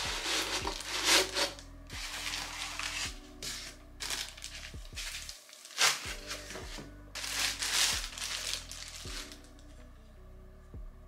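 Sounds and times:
plastic bag crinkling: 0.0s - 3.1s, 4.0s - 6.6s, 7.2s - 9.5s
soft background music: 0.0s - 11.0s.

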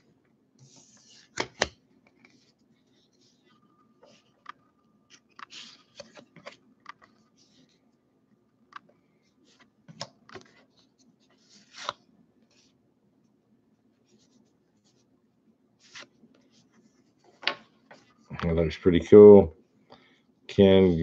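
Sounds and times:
cards sliding and clicking: 11.5s - 12.0s.

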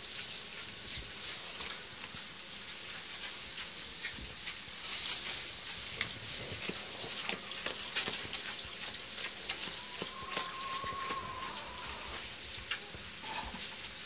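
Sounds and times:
rustling in hay: 0.0s - 14.0s
hooves knocking on wooden boards: 6.0s - 13.0s.

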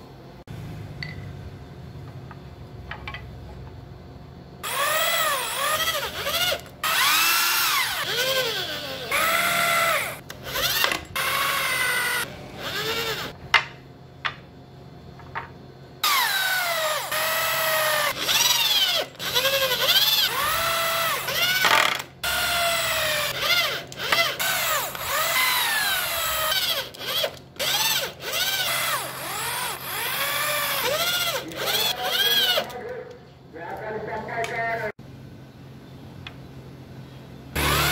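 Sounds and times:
electric drill boring into wood: 4.6s - 13.4s, 16.0s - 32.7s, 37.6s - 37.9s.

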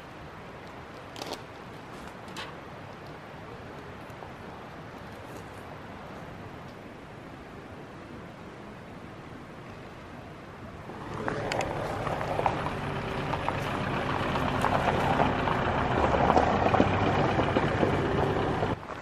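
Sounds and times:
truck engine driving off: 10.9s - 18.8s.

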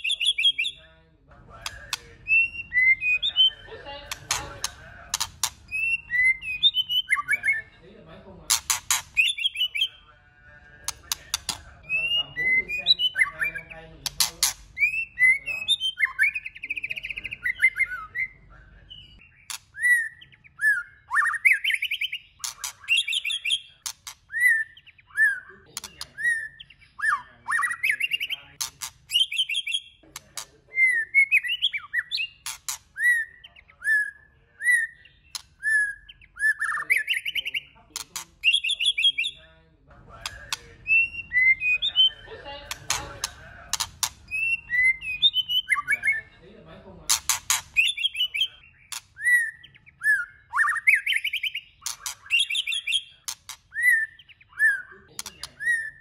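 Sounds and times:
bird singing whistled phrases: 0.0s - 0.8s, 1.7s - 3.7s, 5.7s - 7.7s, 9.2s - 10.0s, 11.8s - 13.8s, 14.8s - 28.4s, 30.7s - 32.4s, 33.0s - 37.8s, 38.4s - 39.4s, 40.5s - 42.2s, 44.3s - 46.3s, 47.8s - 56.0s
sharp clicks: 1.6s - 2.1s, 4.1s - 5.8s, 8.5s - 9.3s, 10.8s - 11.7s, 14.0s - 14.8s, 35.3s - 35.6s, 42.6s - 44.4s, 47.1s - 47.9s, 51.8s - 52.4s, 53.2s - 53.6s.

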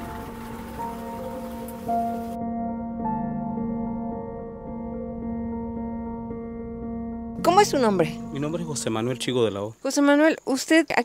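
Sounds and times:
motorboat running: 0.0s - 2.4s
soft ambient music: 0.0s - 9.7s.

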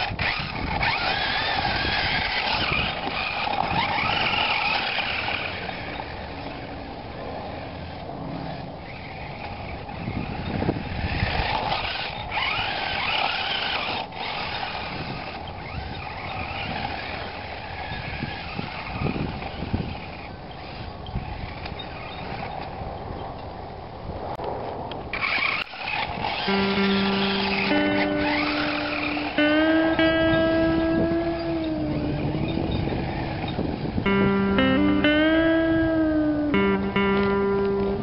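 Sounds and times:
toy truck electric motor whining: 0.0s - 22.7s, 25.1s - 29.6s.

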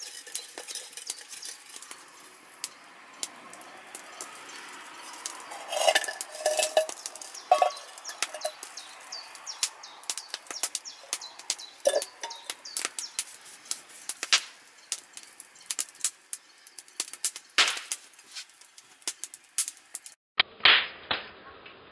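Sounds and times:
metal cup clinking on stones: 0.0s - 9.0s, 10.0s - 13.0s
campfire crackling and popping: 0.0s - 21.2s.

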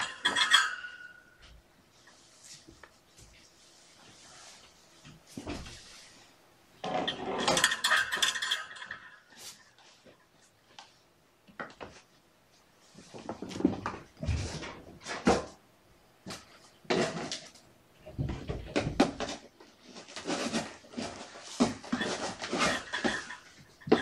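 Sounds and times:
cat litter being scraped: 19.8s - 23.6s.

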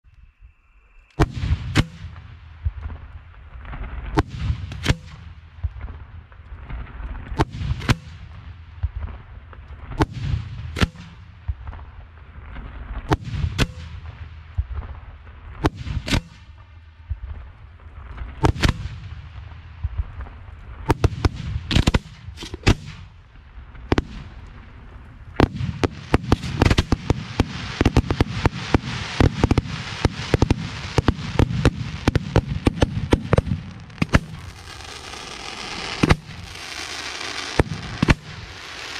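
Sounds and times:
firework crackling: 0.2s - 38.9s
firework shells bursting: 25.4s - 38.9s.

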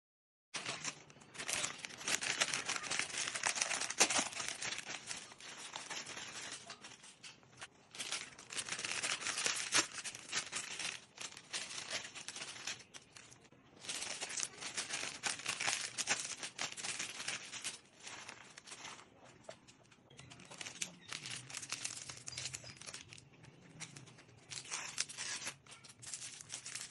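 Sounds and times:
plastic snack packets crinkling: 0.6s - 26.9s.

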